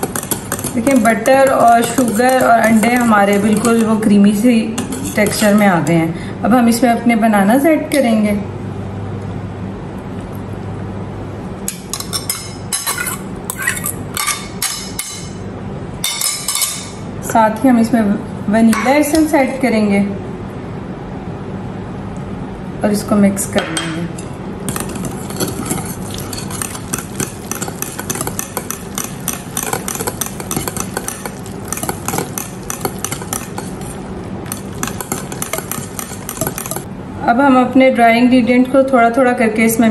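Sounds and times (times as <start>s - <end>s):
low steady hum: 0.0s - 39.9s
fork clinking on plate and bowl: 11.7s - 15.4s, 16.0s - 17.0s, 24.7s - 36.9s
batter squelching: 24.7s - 36.9s.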